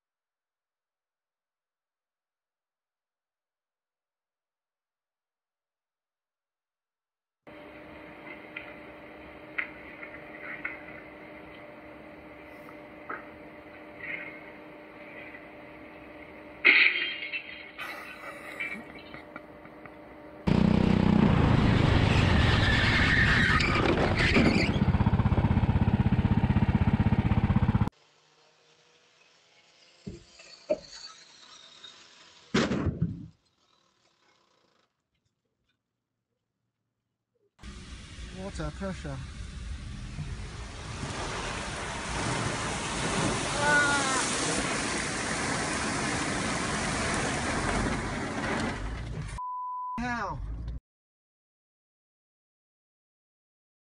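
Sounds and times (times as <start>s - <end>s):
go-kart engine at high revs: 20.4s - 32.6s
person shouting: 43.5s - 44.4s.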